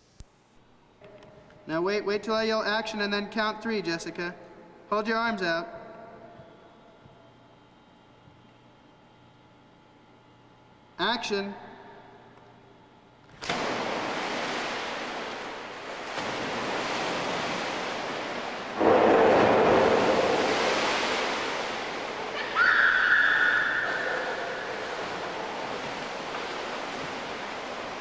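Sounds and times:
water splashing in a pool: 13.4 - 28.0.

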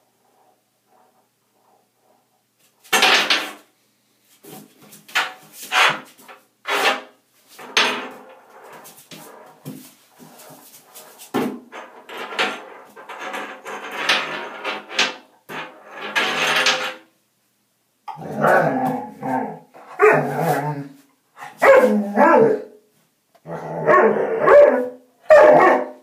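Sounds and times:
puppy scraping metal drain plug: 5.2 - 9.6, 11.7 - 17.0.

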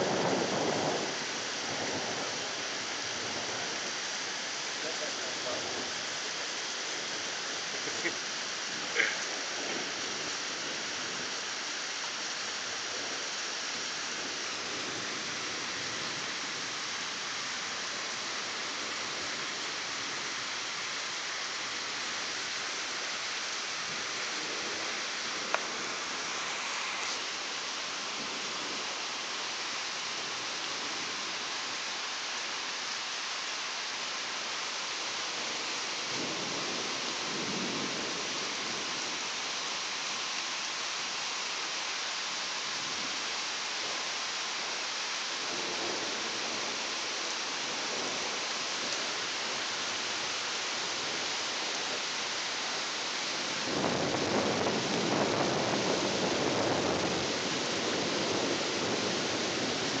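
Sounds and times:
rolling thunder: 0.0 - 2.6, 53.6 - 59.9
rain hissing: 0.0 - 60.0.

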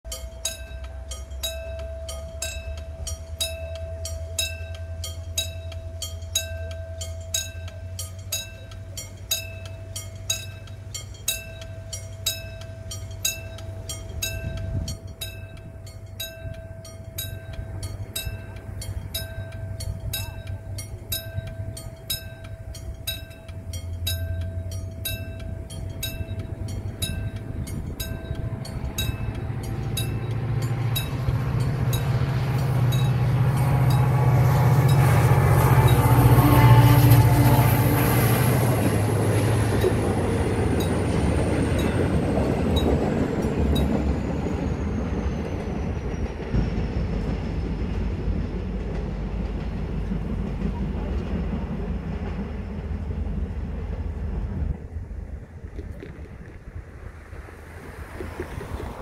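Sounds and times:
approaching diesel train: 0.0 - 59.0
level crossing warning bell: 0.1 - 46.5
low rumble: 0.2 - 59.0.

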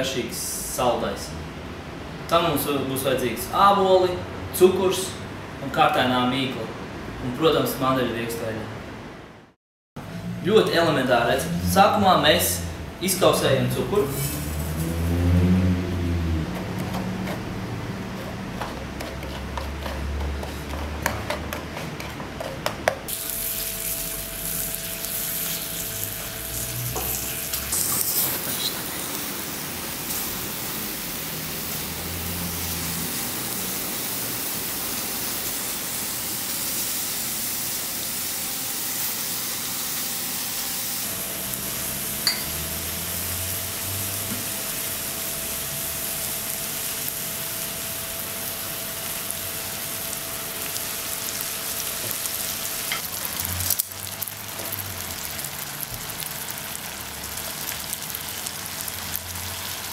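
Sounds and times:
apples sizzling in a frying pan: 13.0 - 15.2, 23.1 - 59.9.

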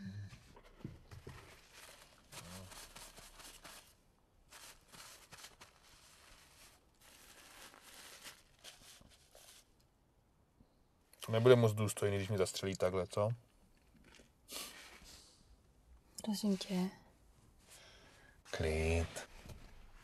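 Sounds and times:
paper tissue crumpling: 1.2 - 9.7, 14.0 - 15.2, 18.4 - 20.0.

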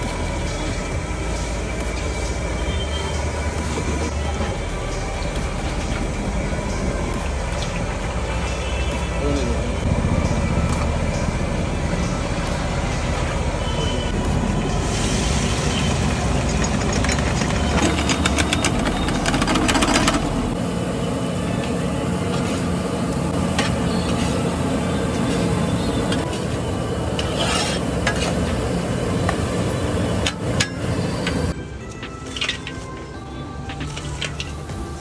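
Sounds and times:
metal spatula scraping a pan: 27.2 - 28.5.

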